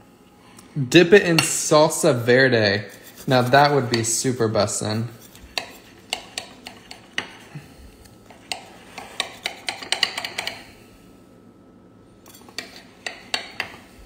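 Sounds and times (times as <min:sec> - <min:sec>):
knife sawing through toasted sandwich: 0:02.8 - 0:03.7.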